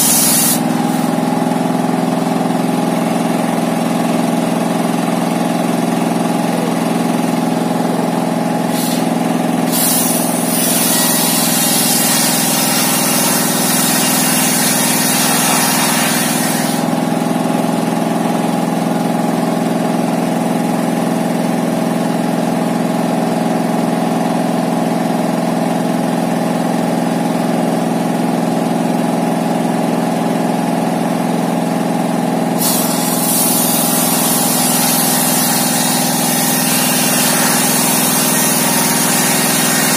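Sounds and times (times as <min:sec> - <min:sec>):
saw blade cutting wood: 0:00.0 - 0:01.2, 0:08.7 - 0:17.1, 0:32.6 - 0:39.9
diesel engine hum: 0:00.6 - 0:24.0.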